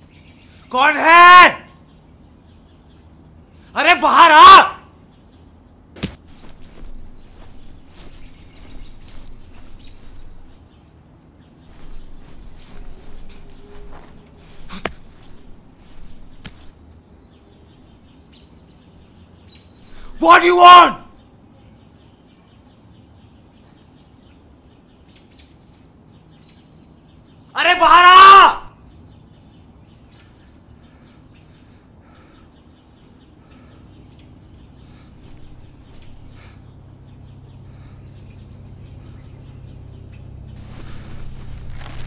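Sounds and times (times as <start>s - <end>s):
sharp snap: 6.0s - 6.3s
footsteps on dirt path: 6.0s - 10.6s, 11.7s - 16.7s, 34.9s - 36.6s, 40.6s - 42.0s
leaves rustling: 6.0s - 10.6s, 11.7s - 16.8s, 19.8s - 21.1s, 34.9s - 36.7s, 40.6s - 42.0s
small bird chirps: 6.3s - 16.7s, 28.9s - 42.0s.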